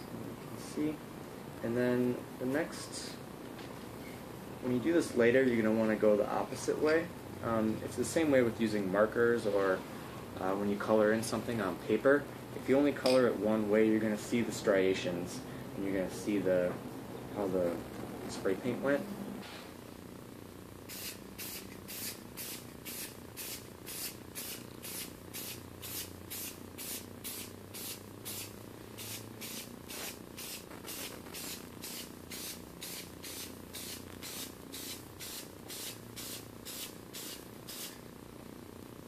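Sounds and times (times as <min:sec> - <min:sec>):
spray paint can hissing: 0:20.9 - 0:38.0.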